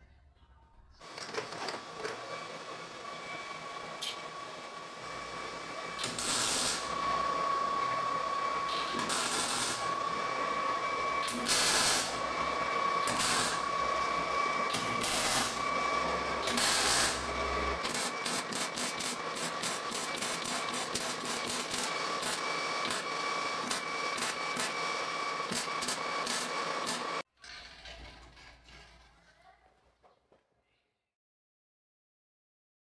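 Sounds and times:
welder hiss and high hum: 0:01.0 - 0:27.2
welding arc bursts: 0:05.0 - 0:07.2, 0:07.8 - 0:10.2, 0:11.2 - 0:27.2.

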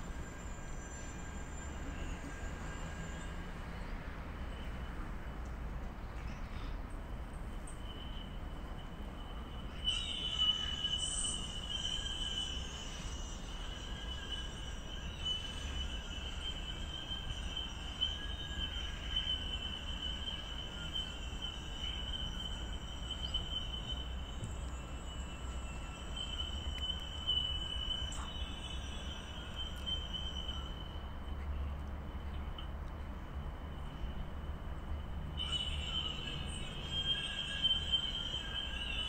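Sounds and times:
high-pitched whine: 0:07.7 - 0:32.6, 0:33.3 - 0:39.0.

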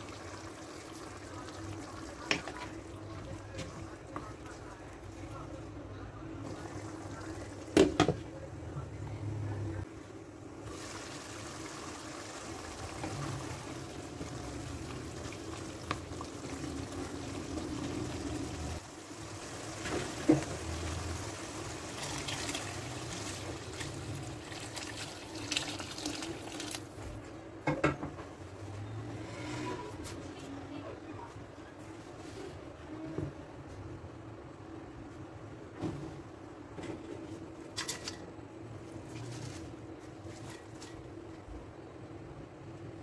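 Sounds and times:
water pouring into pan: 0:10.6 - 0:26.9.

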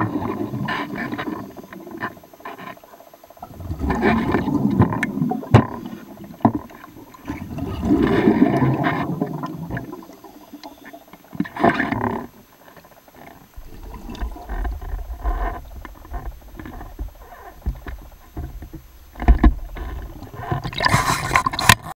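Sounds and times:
water rushing underwater: 0:00.0 - 0:02.4, 0:03.0 - 0:21.8
low steady rumble: 0:13.4 - 0:20.7
water splash: 0:13.6 - 0:21.9.

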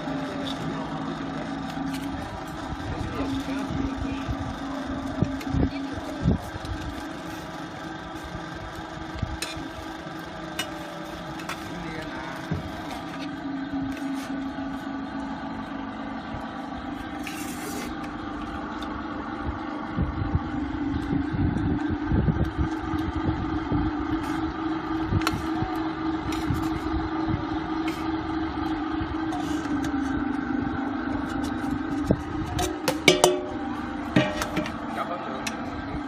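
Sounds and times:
motor hum: 0:00.0 - 0:36.0.

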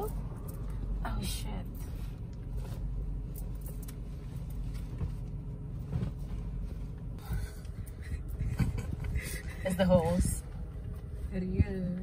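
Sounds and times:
car cabin rumble: 0:00.0 - 0:12.0
fabric rustling: 0:01.7 - 0:07.3.

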